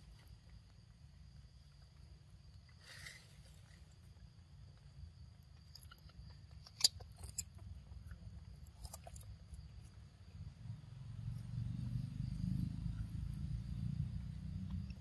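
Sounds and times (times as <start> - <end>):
low rumble: 10.2 - 15.0.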